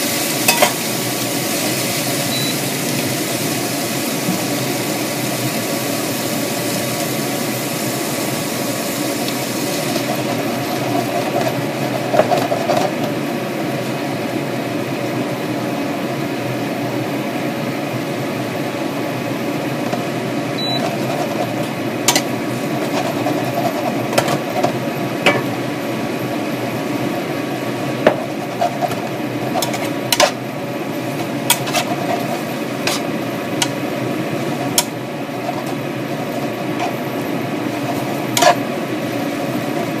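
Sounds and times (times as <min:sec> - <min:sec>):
noodles and cabbage frying: 0:00.0 - 0:40.0
spatula scraping a pan: 0:09.4 - 0:13.2, 0:20.6 - 0:24.8, 0:28.2 - 0:30.4, 0:31.0 - 0:38.7.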